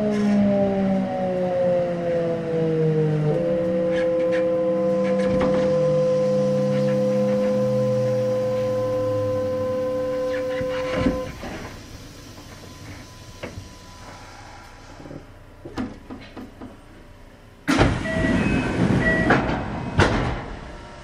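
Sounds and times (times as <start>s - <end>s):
train motor whine: 2.0s - 21.0s
train cabin noise: 3.3s - 16.9s
short beeps: 18.0s - 19.4s.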